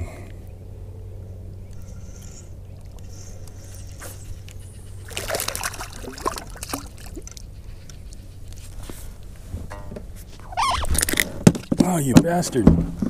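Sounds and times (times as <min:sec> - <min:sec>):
steady low hum: 0:00.0 - 0:13.0
fish splashing at water surface: 0:02.8 - 0:07.5.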